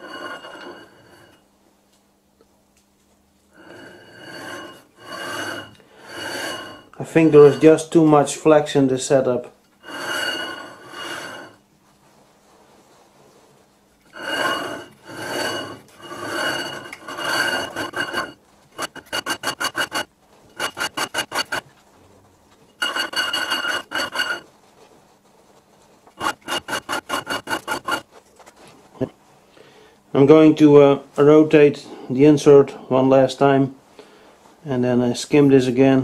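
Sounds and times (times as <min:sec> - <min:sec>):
lathe tool rasping on metal: 0:00.0 - 0:01.4, 0:03.6 - 0:07.9, 0:09.8 - 0:11.6, 0:14.1 - 0:21.7, 0:22.8 - 0:24.4, 0:26.2 - 0:28.0
lathe chatter rattling: 0:16.0 - 0:21.6, 0:22.8 - 0:24.4, 0:26.2 - 0:28.0.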